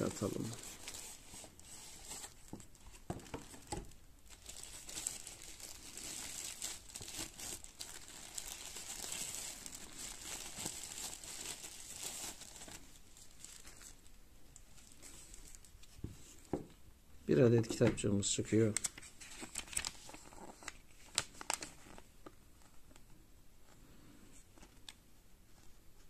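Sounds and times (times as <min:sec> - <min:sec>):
plastic packaging crinkling: 0:00.0 - 0:16.0, 0:18.6 - 0:23.0.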